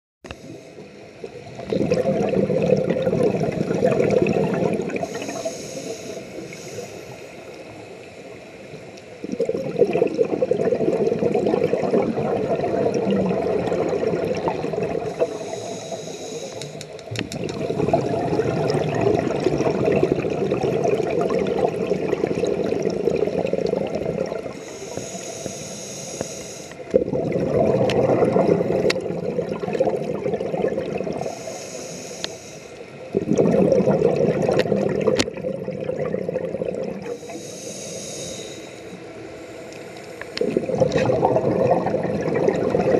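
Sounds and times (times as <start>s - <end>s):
underwater exhaust bubbling: 0.3s - 42.9s
regulator inhalation hiss: 5.0s - 8.6s, 15.0s - 17.0s, 24.5s - 26.9s, 31.2s - 33.1s, 37.0s - 40.4s.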